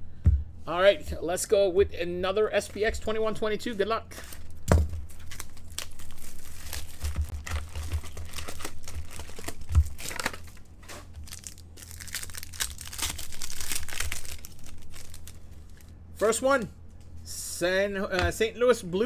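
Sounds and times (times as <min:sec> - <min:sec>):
foil wrapper crinkling and tearing: 0:04.2 - 0:15.9.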